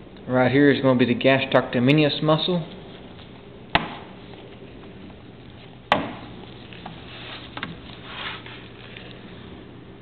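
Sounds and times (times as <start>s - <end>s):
low steady hum: 0.0s - 10.0s
sharp knocks: 3.7s - 4.2s, 5.9s - 6.4s.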